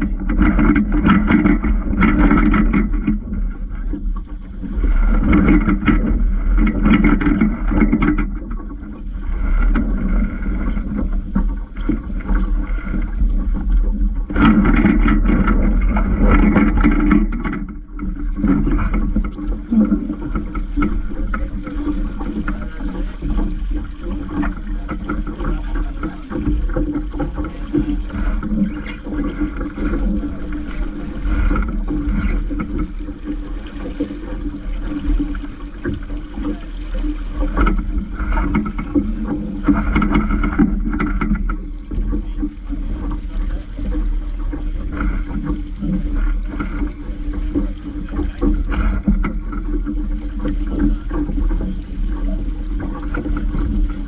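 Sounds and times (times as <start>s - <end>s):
water rushing along hull: 0.0s - 54.0s
wind buffeting microphone: 0.0s - 54.0s.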